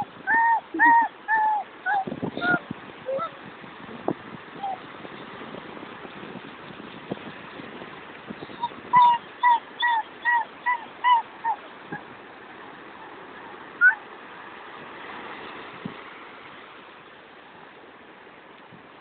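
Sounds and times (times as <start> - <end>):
surf: 0.0 - 19.0
wind: 0.0 - 19.0
bird honking calls: 8.6 - 11.8.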